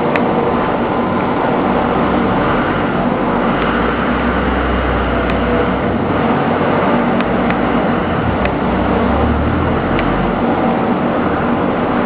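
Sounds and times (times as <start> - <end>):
industrial machinery hum: 0.0 - 12.0.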